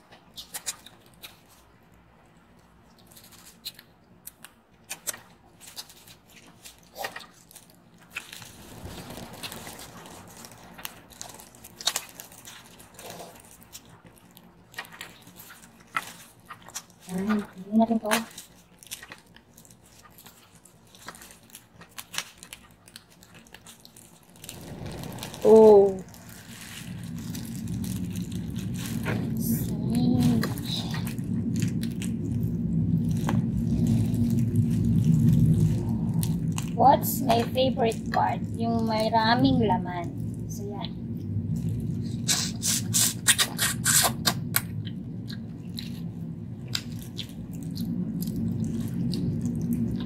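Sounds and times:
crab shell crackling: 2.7 - 50.0
plastic gloves crinkling: 2.7 - 50.0
low rumble: 8.1 - 14.5, 24.2 - 50.0.

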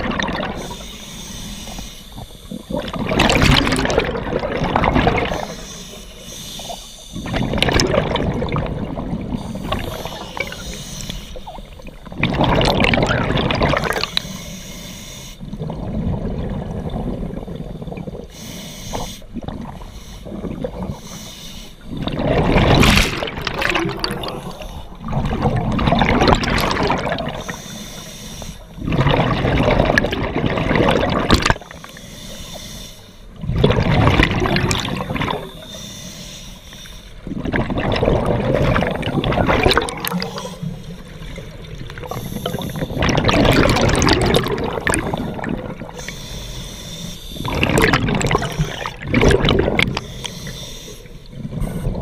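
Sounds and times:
exhaled bubbles rushing: 0.0 - 0.8, 2.4 - 5.6, 7.2 - 10.6, 11.7 - 14.1, 15.6 - 18.3, 19.4 - 21.0, 21.9 - 27.5, 28.8 - 31.7, 33.3 - 35.7, 37.2 - 46.0, 47.4 - 50.0
regulator inhale hissing: 0.6 - 2.8, 5.3 - 7.5, 9.4 - 11.9, 13.8 - 15.6, 18.3 - 22.0, 24.1 - 25.1, 27.3 - 28.8, 31.6 - 33.4, 34.8 - 37.3, 40.0 - 43.0, 45.0 - 47.6, 49.9 - 52.0.

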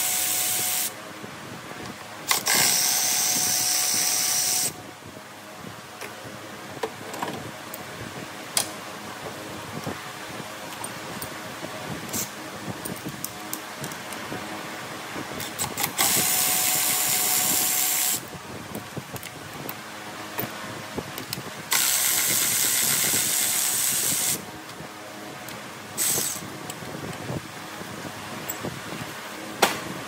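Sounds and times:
power tool running: 0.0 - 1.0, 2.3 - 4.8, 15.6 - 18.2, 21.7 - 24.4, 26.0 - 26.5.

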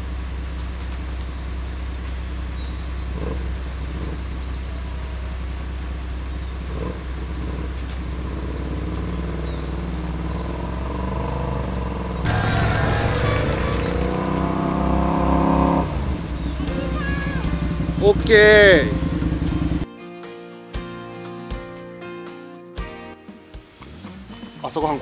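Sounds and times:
motorcycle engine running: 0.0 - 19.9.

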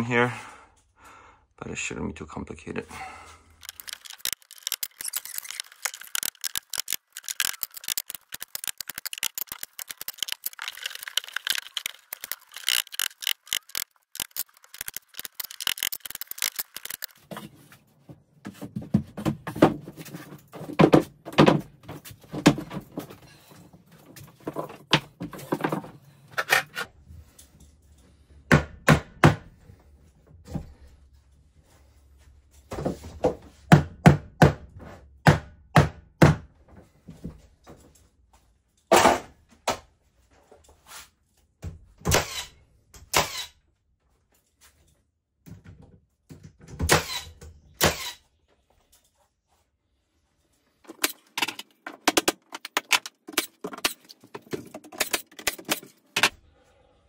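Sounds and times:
wooden boards clicking and clattering: 3.6 - 17.4, 18.5 - 23.1.

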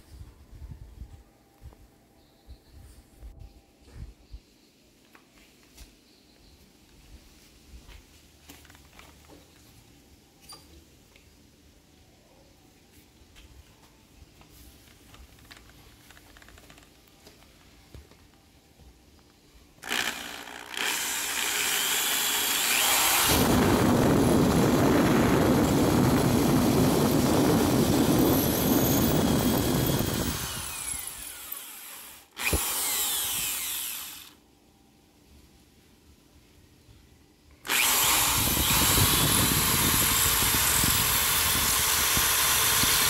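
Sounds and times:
power drill drilling into ceiling: 19.8 - 34.4, 37.6 - 43.0.

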